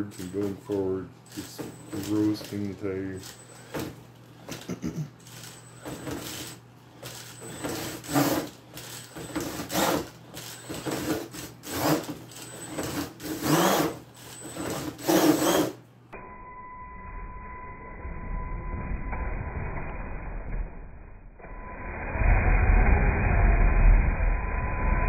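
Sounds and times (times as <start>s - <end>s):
electric motor whining: 5.2s - 15.8s
tires scrabbling on cardboard: 7.5s - 8.5s.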